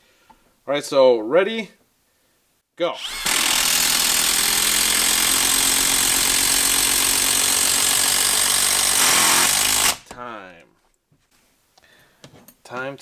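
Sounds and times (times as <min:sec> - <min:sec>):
impact driver hammering: 0:03.0 - 0:10.2.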